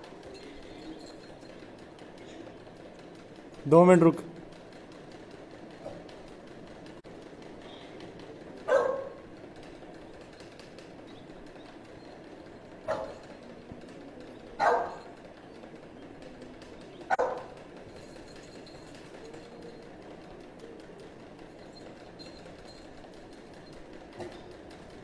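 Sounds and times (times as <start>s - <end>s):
dog barking: 8.7s - 9.2s, 12.9s - 13.2s, 14.6s - 15.0s, 17.1s - 17.6s.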